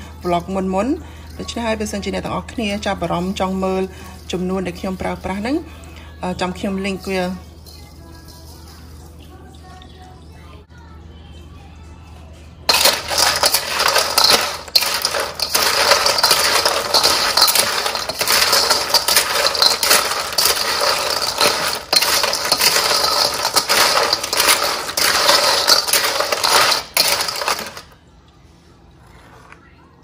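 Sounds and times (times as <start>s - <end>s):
clam shells clattering: 12.7s - 28.0s.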